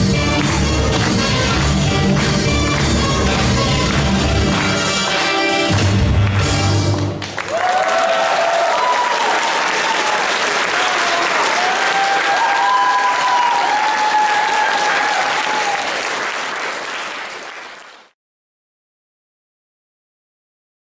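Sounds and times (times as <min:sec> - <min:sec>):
audience applauding: 0:00.0 - 0:18.2
crowd cheering: 0:06.2 - 0:18.1.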